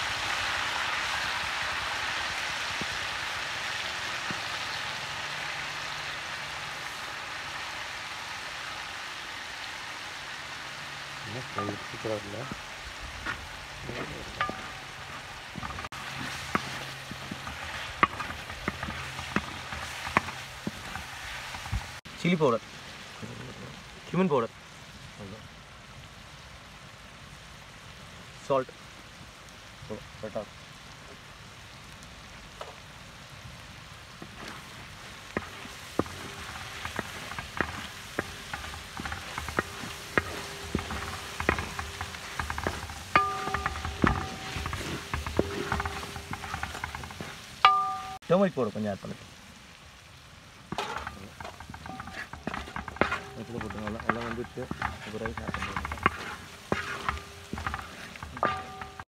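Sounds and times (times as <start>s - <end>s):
food sizzling in oil: 0.0s - 59.0s
spatula scraping pan: 13.3s - 22.0s, 34.2s - 48.2s, 50.7s - 59.0s.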